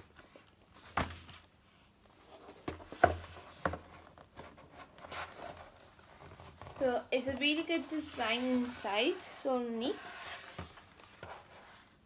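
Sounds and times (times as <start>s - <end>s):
cardboard rustling: 0.0s - 12.0s.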